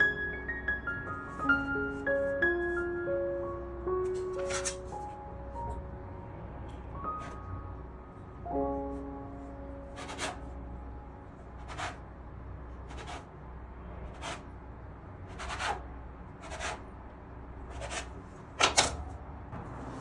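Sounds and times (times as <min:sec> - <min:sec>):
bench scraper scraping worktop: 0:04.4 - 0:04.8, 0:11.7 - 0:12.0, 0:12.9 - 0:13.3, 0:15.3 - 0:15.8, 0:16.4 - 0:16.8, 0:17.7 - 0:18.1.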